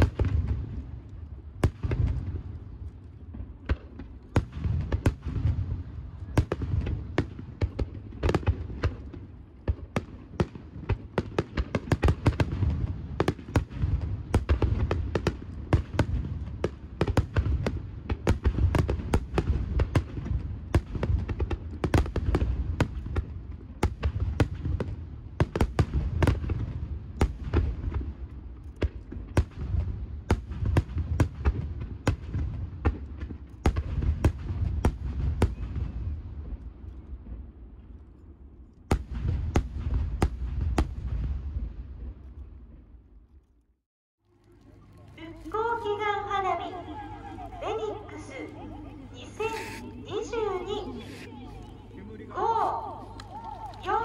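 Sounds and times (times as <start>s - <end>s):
firework shells bursting: 48.1s - 51.3s.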